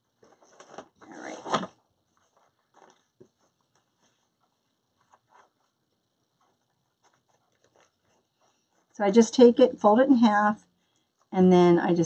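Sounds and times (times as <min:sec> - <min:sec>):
ribbon rustling: 0:00.0 - 0:09.0.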